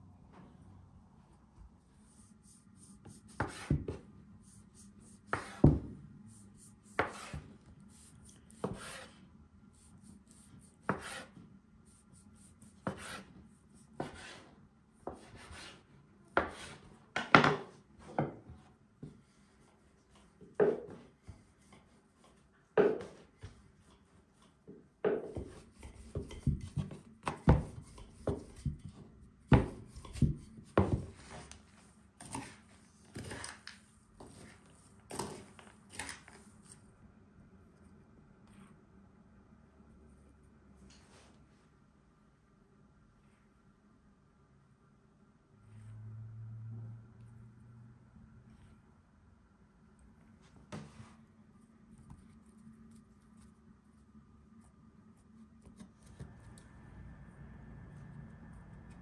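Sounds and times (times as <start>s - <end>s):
knife slicing through dough: 2.6s - 4.1s, 4.7s - 9.2s, 9.8s - 16.9s, 25.2s - 29.0s, 32.2s - 36.8s.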